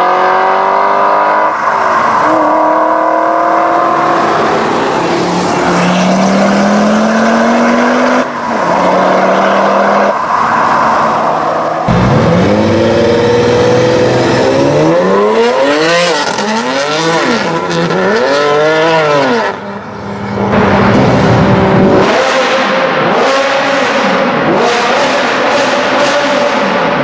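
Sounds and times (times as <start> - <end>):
car engine revving: 0.0 - 27.0
car engine running steadily: 11.9 - 14.0.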